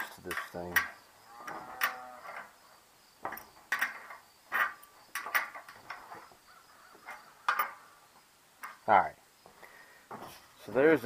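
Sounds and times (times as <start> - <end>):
wrench clinking on metal bolts: 3.2 - 6.0, 7.1 - 7.8.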